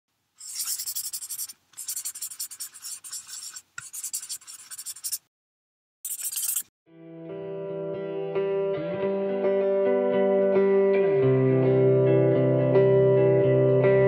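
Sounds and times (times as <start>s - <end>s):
pen scribbling on paper: 0.4s - 5.3s, 6.1s - 6.6s.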